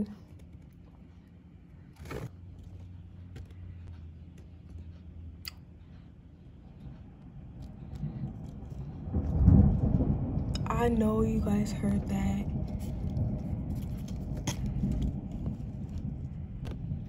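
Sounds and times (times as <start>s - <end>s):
steady low hum: 0.0s - 17.0s
faint rain through a window: 6.8s - 17.0s.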